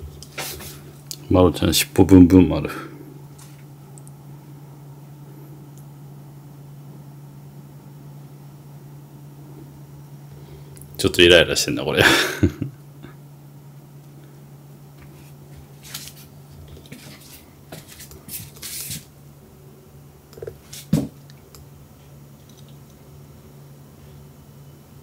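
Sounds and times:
low room hum: 0.0s - 25.0s
soft rustles and scrapes: 0.3s - 1.0s, 15.0s - 19.1s, 20.6s - 21.1s.

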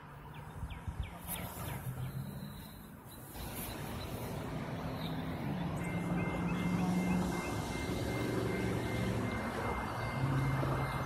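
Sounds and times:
truck engine approaching: 0.0s - 11.0s
steady high-pitched tone: 2.3s - 11.0s.

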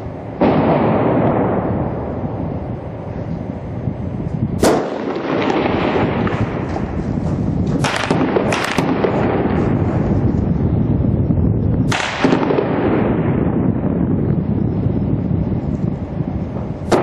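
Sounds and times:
continuous rumble: 0.0s - 17.0s
gunshots echoing: 4.6s - 6.7s, 7.8s - 10.0s, 11.9s - 13.2s.

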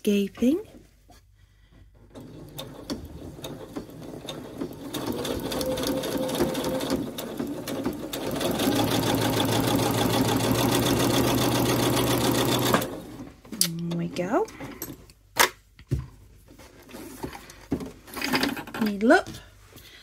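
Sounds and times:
sewing machine stitching: 2.0s - 13.3s.

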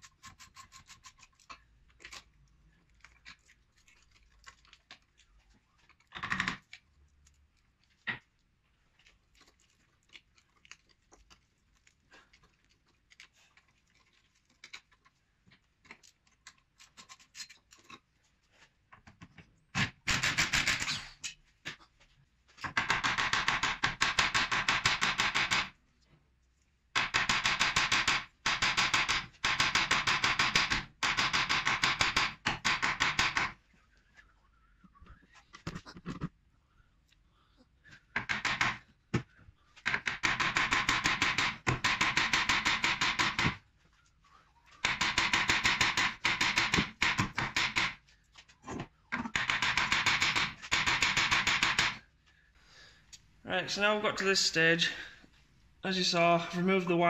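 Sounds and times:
rapid metal hammer strikes: 22.8s - 25.7s, 27.0s - 33.6s, 39.9s - 43.6s, 44.8s - 48.0s, 49.4s - 52.0s.

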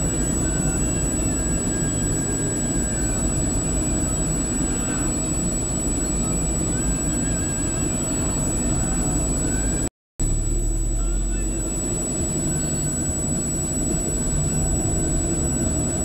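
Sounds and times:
engine and tyre rumble: 0.0s - 16.0s
high-pitched whine: 0.0s - 16.0s.

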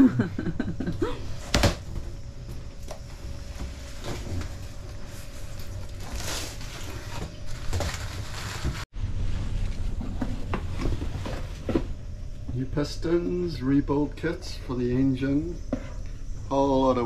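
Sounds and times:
cardboard scraping and rustling: 2.9s - 12.0s
packing paper and bubble wrap shifting: 5.1s - 8.9s.

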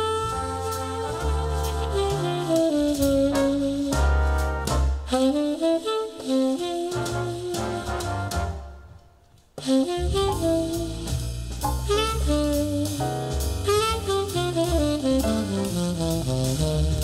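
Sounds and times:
jazz tenor saxophone melody: 0.0s - 9.0s, 9.6s - 17.0s
bass: 0.0s - 17.0s
drums: 0.0s - 17.0s.

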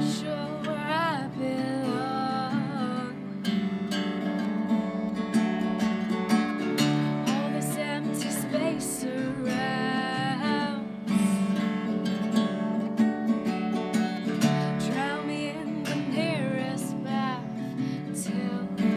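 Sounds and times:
woman singing: 0.0s - 3.6s, 7.2s - 12.3s, 14.3s - 18.9s
strummed acoustic guitar: 0.0s - 18.9s.

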